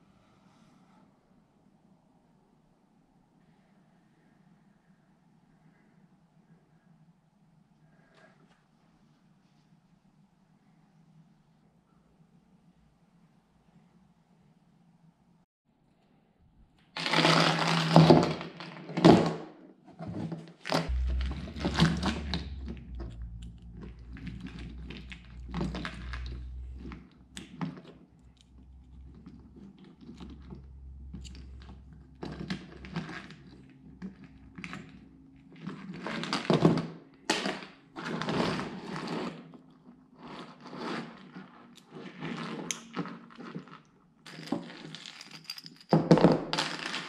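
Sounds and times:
chain links clinking: 44.3s - 46.2s
metal chain clattering on rubber mat: 44.3s - 46.8s.

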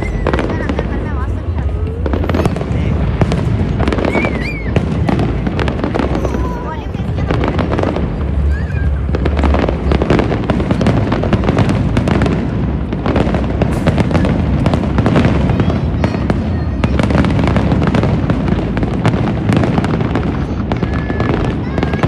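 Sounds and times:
fireworks bursting and crackling: 0.0s - 22.0s.

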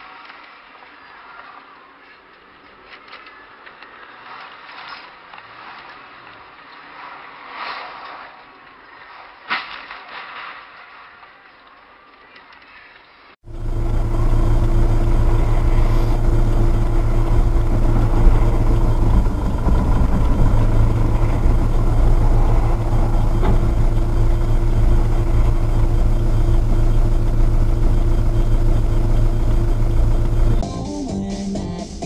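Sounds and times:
vehicle engine droning: 13.4s - 30.7s.

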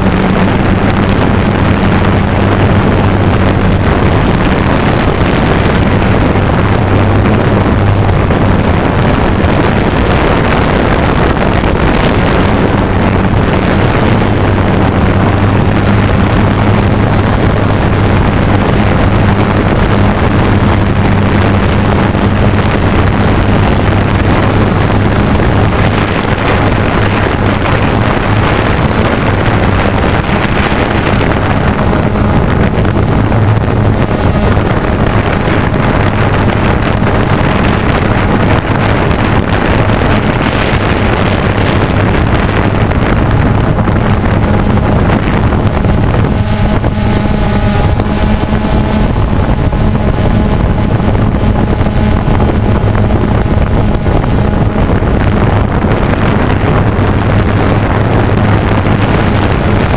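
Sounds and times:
hovercraft motor humming: 0.0s - 59.9s
wind buffeting microphone: 0.0s - 59.9s.

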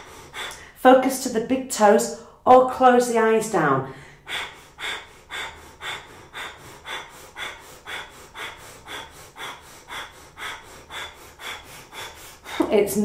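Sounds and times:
woman breathing rapidly through nose: 0.0s - 0.8s, 3.9s - 12.8s.

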